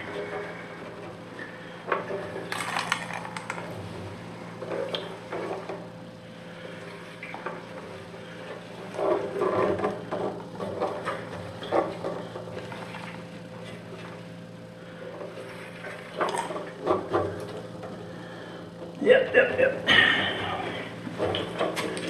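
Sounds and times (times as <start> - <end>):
gasoline sloshing in metal tank: 6.4 - 18.7.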